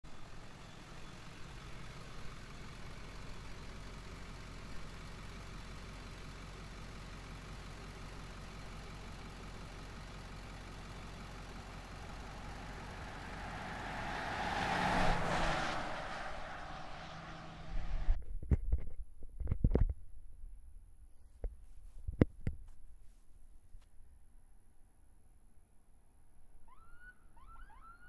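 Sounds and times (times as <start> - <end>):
low engine hum: 0.0 - 18.5
pickup truck driving past: 11.3 - 18.1.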